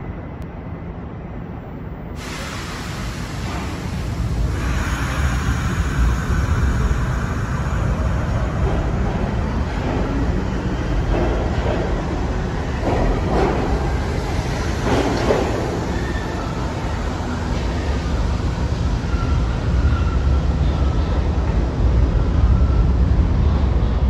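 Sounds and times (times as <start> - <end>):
subway train rumbling: 0.0 - 24.0
train wheel clatter: 2.2 - 5.9, 7.7 - 19.3.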